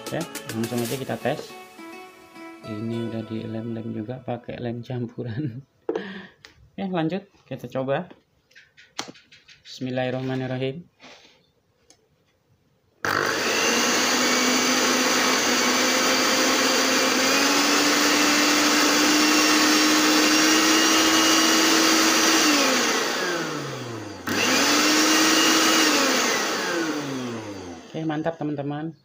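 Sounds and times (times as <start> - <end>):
blender motor whining: 13.0 - 28.6.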